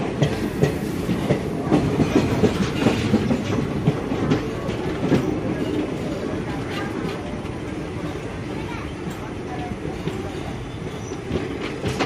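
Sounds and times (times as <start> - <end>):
wheels clattering over rails: 0.0 - 8.2
train coach rumble: 0.0 - 12.0.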